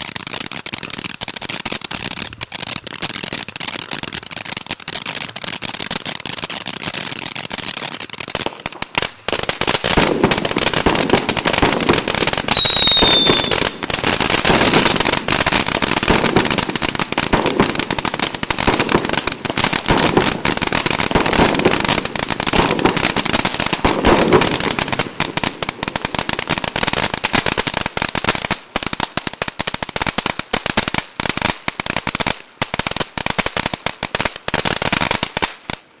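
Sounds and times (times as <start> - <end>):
firework fountain sparks rushing: 0.0 - 35.8
firework crackling: 0.0 - 36.0
short falling whistle: 12.5 - 13.6.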